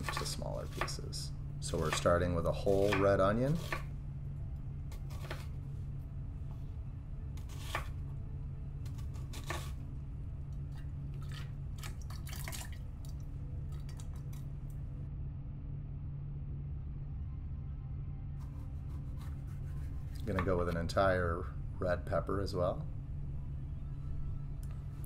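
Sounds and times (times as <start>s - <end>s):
knife cutting on wooden board: 0.0s - 1.0s, 1.8s - 3.9s, 4.9s - 5.6s, 7.4s - 8.0s, 8.8s - 9.8s, 18.4s - 20.8s
steady low hum: 0.0s - 25.0s.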